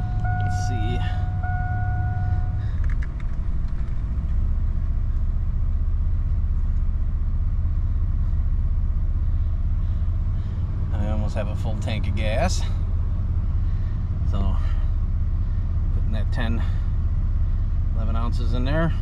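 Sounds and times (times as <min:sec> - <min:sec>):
dashboard warning chime: 0:00.0 - 0:02.7
car engine idling: 0:00.0 - 0:19.0.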